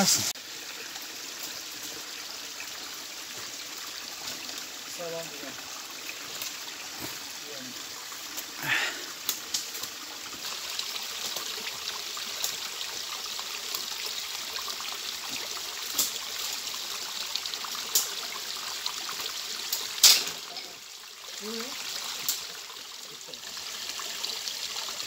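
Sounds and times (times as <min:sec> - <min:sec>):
stream trickling over stones: 0:00.0 - 0:25.0
footsteps on rocks: 0:06.9 - 0:07.3.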